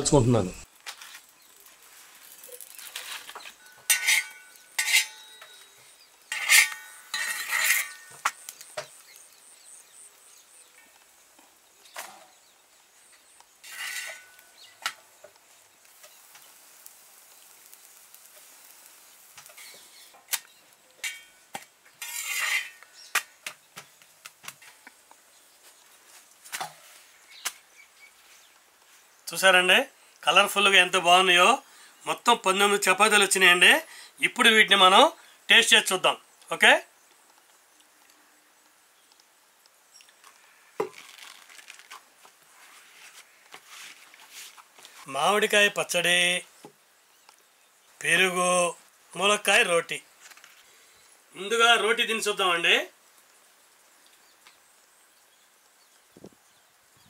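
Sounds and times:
frying oil hissing: 0.1s - 57.0s
metal utensil scraping griddle: 1.7s - 8.6s, 13.6s - 15.0s, 16.0s - 20.4s, 21.0s - 23.4s.

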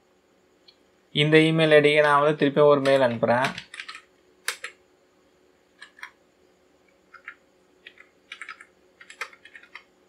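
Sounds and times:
computer keyboard typing: 2.8s - 4.8s, 5.8s - 6.2s, 7.1s - 9.9s.

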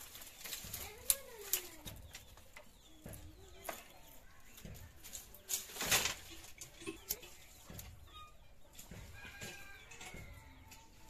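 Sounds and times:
firewood sticks clattering down: 0.0s - 11.0s.

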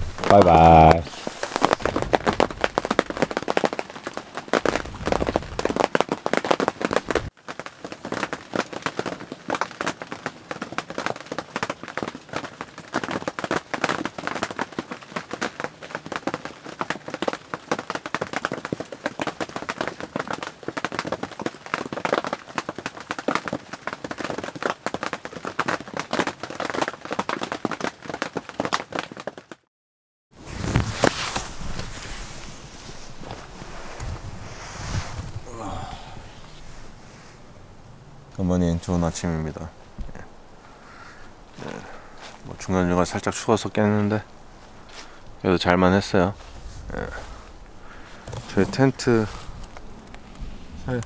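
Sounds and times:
rain pattering on tent fabric: 0.0s - 29.7s, 30.3s - 51.0s.

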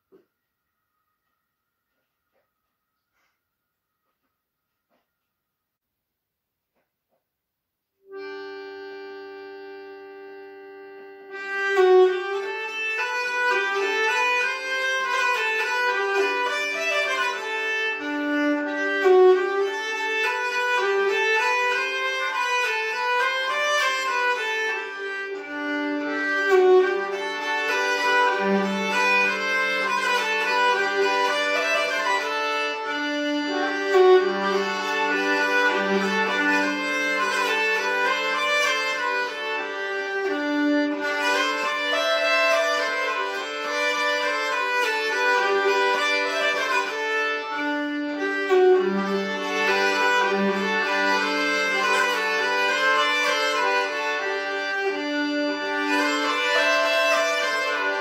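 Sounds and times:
accordion playing: 8.1s - 58.0s
bowed folk fiddle melody: 8.1s - 58.0s.

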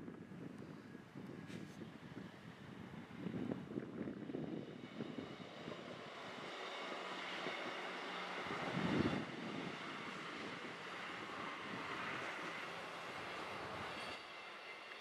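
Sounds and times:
wind on microphone: 0.0s - 6.5s, 8.4s - 14.2s
diesel train passing: 4.2s - 15.0s.

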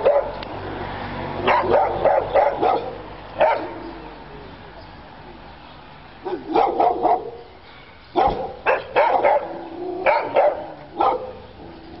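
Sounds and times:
dog barking: 0.0s - 0.4s, 1.4s - 3.8s, 6.2s - 7.4s, 8.2s - 11.4s.

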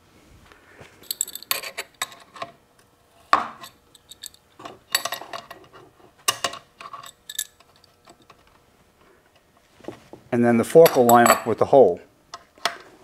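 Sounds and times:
steel parts clinking and scraping: 1.0s - 2.5s, 3.6s - 8.4s.

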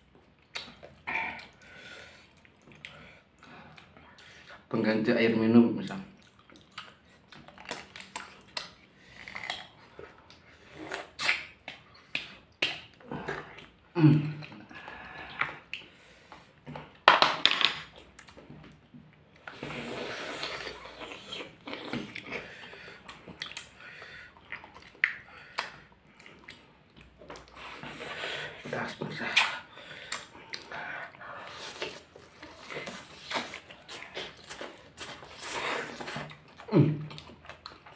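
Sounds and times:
wet chewing and lip smacks: 0.1s - 4.6s, 5.9s - 17.0s, 20.3s - 28.1s, 28.8s - 37.9s
noodle slurp: 19.4s - 23.8s, 27.5s - 36.5s.

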